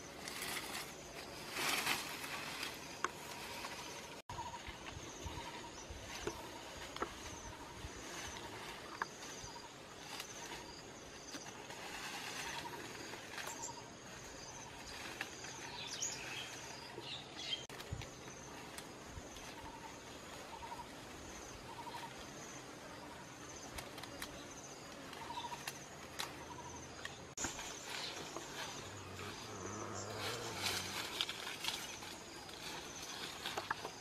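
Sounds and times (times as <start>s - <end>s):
vegetation snapping and rustling: 23.6s - 28.8s.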